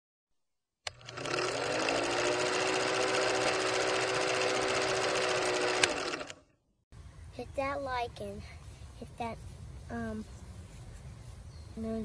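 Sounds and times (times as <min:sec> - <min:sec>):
film projector clattering: 0:00.9 - 0:06.4.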